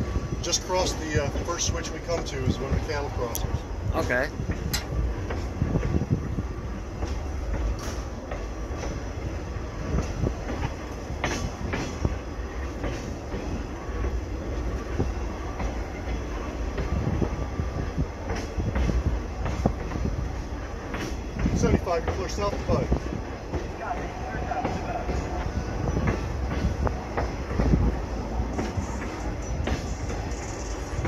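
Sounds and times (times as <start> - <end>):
low rumble of train wheels: 0.0 - 31.0
wheels clicking on rail: 6.8 - 31.0.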